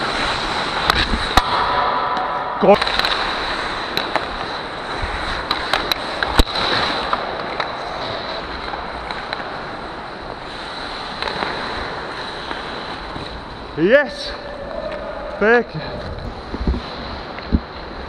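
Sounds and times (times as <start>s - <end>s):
skate blades scraping ice: 0.0s - 1.7s, 2.3s - 18.0s
hockey sticks clacking: 0.0s - 18.0s
loud stick crack: 0.8s - 4.3s.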